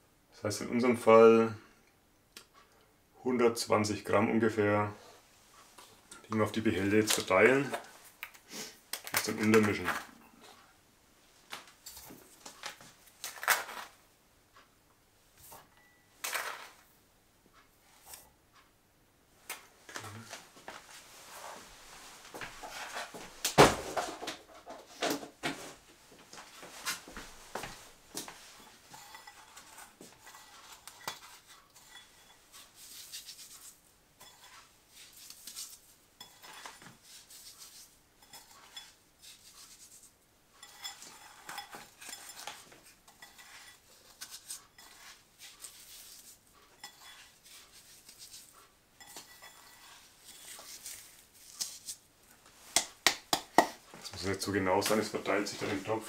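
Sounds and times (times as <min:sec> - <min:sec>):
salt sprinkling on cabbage: 0:29.3 - 0:52.8.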